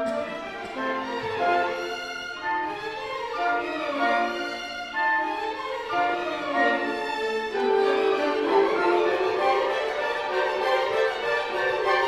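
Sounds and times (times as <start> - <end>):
orchestral music with violins: 0.0 - 12.0.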